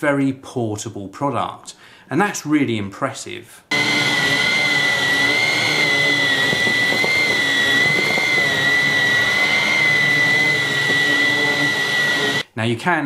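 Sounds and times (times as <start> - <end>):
stick vacuum motor whine: 3.7 - 12.4.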